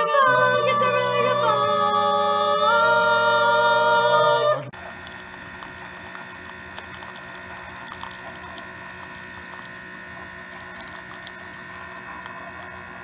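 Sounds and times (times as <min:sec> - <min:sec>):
coffee machine pump humming: 0:00.0 - 0:13.0
coffee pouring into a mug: 0:04.8 - 0:13.0.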